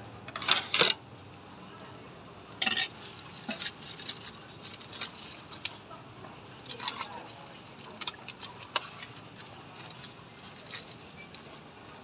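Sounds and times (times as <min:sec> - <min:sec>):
metal utensils clinking: 0:02.6 - 0:04.1.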